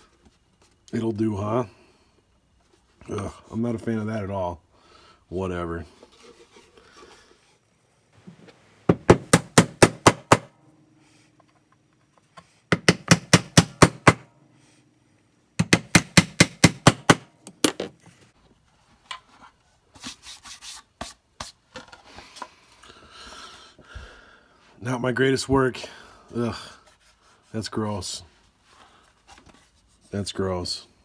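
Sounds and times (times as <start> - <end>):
hammer driving nails into plywood: 8.9 - 10.5, 12.7 - 14.3, 15.6 - 17.9.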